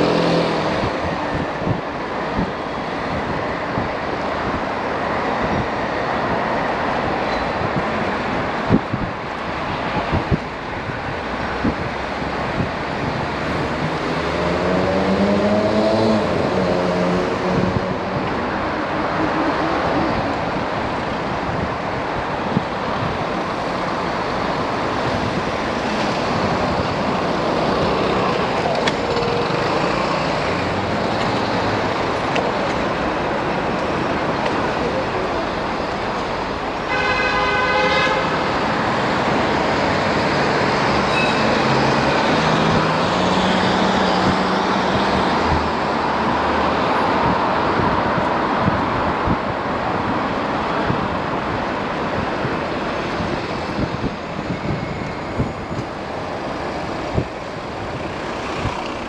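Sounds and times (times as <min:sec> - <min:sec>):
wind on microphone: 0:00.2 - 0:36.7, 0:42.1 - 0:59.0
vehicle horn: 0:36.8 - 0:38.4.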